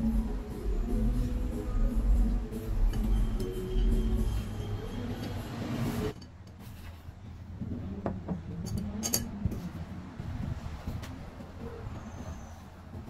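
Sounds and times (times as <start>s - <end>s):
background music: 0.0s - 6.2s
chopsticks clinking on bowls: 8.6s - 9.4s.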